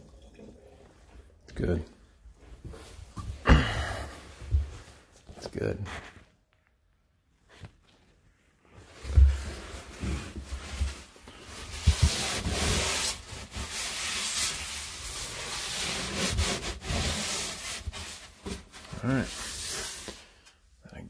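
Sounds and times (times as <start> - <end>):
paper towel scrubbing wood: 9.0 - 20.3.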